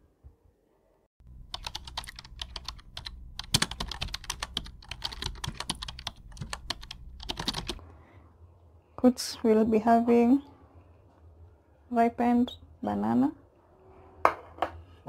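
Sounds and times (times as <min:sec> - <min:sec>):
rapid clicks and taps: 0:01.2 - 0:07.8
steady low hum: 0:01.2 - 0:09.0.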